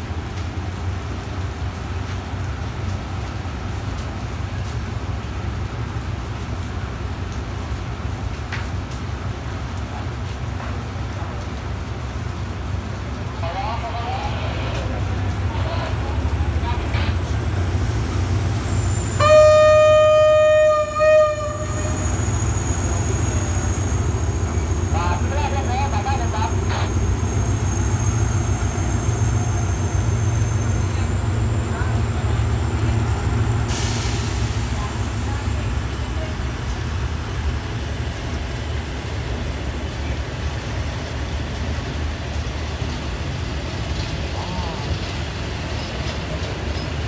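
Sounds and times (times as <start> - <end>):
diesel engine rumble: 0.0 - 19.2, 21.4 - 47.0
locomotive air horn: 19.1 - 22.4.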